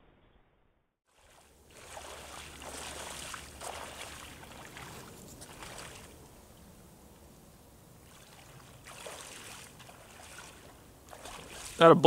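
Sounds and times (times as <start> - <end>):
wading through shallow water: 1.1 - 12.0.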